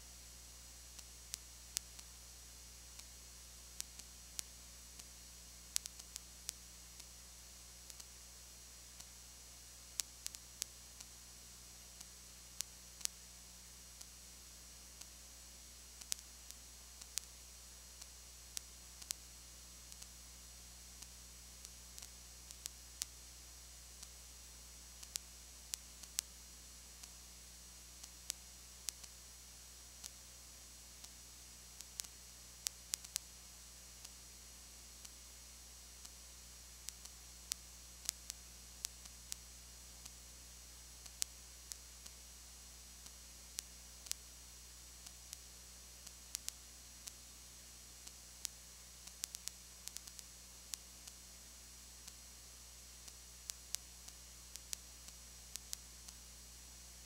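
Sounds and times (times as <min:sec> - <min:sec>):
sharp clicks and crackles: 0:02.8 - 0:07.2, 0:07.8 - 0:08.2, 0:09.9 - 0:11.2, 0:15.9 - 0:20.3, 0:20.9 - 0:23.2, 0:25.0 - 0:27.2, 0:28.0 - 0:30.3, 0:31.0 - 0:33.4, 0:34.0 - 0:42.3, 0:43.0 - 0:47.3, 0:48.0 - 0:51.3, 0:53.0 - 0:56.4.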